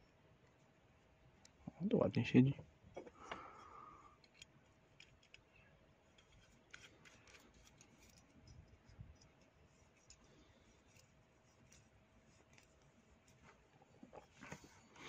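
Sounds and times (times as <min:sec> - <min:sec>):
faint small clicks of parts: 0:02.9 - 0:14.8.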